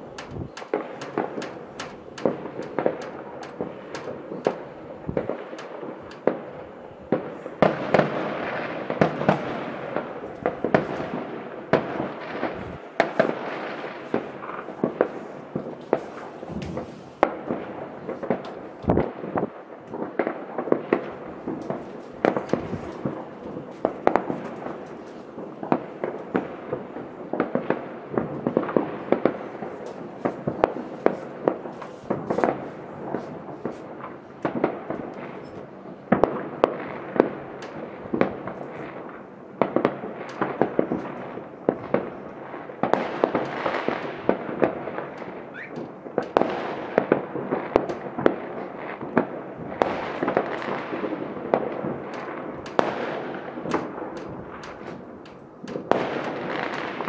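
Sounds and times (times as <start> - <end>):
fireworks bangs and crackles: 0.0 - 57.0
constant rumble: 16.4 - 17.2.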